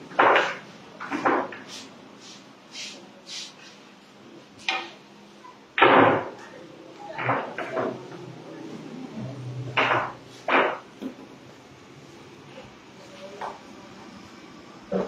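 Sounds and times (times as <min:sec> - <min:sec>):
pool balls clicking: 0:00.0 - 0:01.7, 0:07.2 - 0:08.3, 0:09.7 - 0:11.4.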